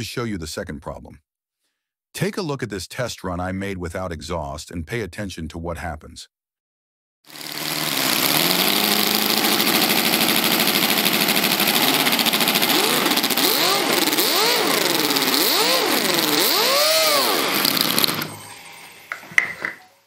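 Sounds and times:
model engine revving: 0:07.3 - 0:18.4.

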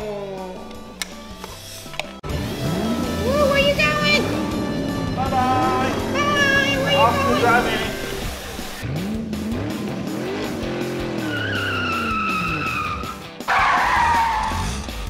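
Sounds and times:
car engine revving: 0:02.2 - 0:15.0
tyre squeal: 0:11.2 - 0:14.7.

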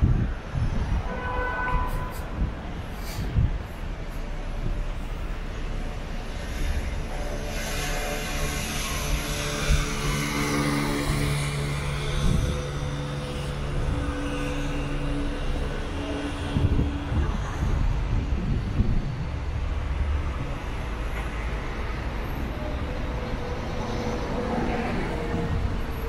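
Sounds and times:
passing traffic rumble: 0:00.0 - 0:26.0
vehicle engine humming: 0:01.8 - 0:26.0.

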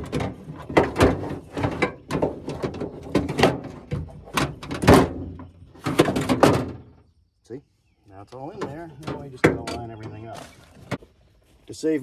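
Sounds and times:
metal knocks and scrapes: 0:00.0 - 0:07.0, 0:08.5 - 0:11.1.

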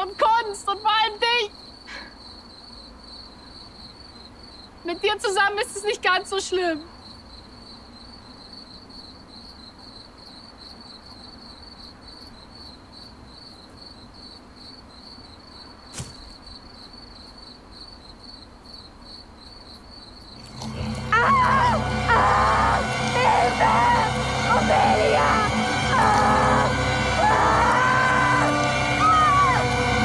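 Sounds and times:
crickets chirping: 0:00.0 - 0:30.0
loud burst of music: 0:20.4 - 0:30.0
woman screaming: 0:21.0 - 0:30.0.

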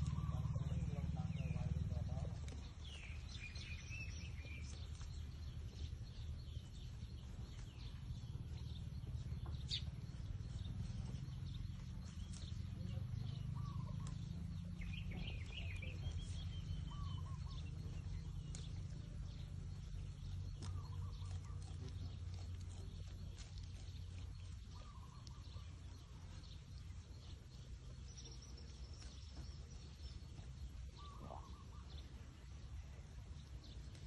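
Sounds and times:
bird chirps: 0:00.0 - 0:34.0
low rumble: 0:00.0 - 0:34.0.

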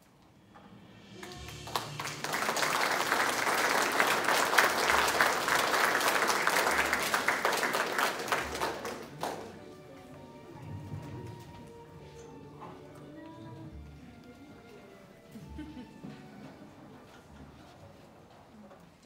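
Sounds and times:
audience applauding: 0:01.2 - 0:09.7.

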